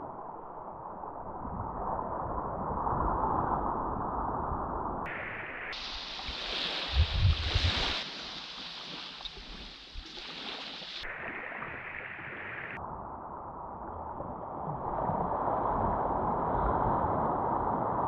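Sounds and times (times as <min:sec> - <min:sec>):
waves washing onto shore: 0:05.1 - 0:12.8.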